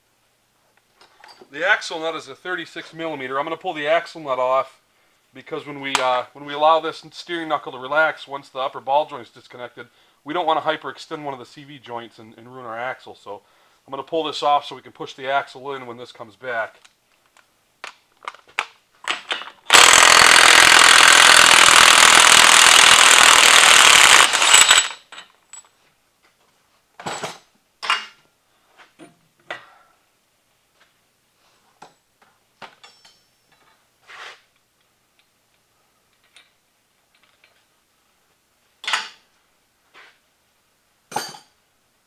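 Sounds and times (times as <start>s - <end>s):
impact wrench hammering: 19.7s - 25.1s.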